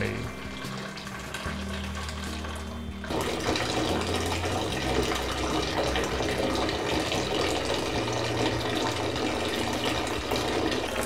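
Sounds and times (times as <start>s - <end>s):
hot water pouring from tap: 0.0s - 11.0s.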